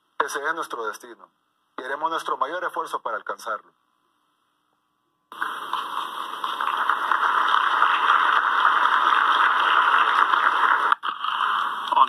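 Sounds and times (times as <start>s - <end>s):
crowd applauding: 5.3s - 11.0s.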